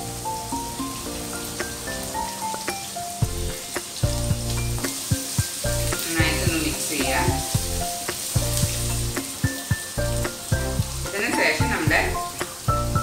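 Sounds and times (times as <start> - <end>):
food sizzling in hot oil: 0.0 - 13.0
background music with bass: 3.2 - 13.0.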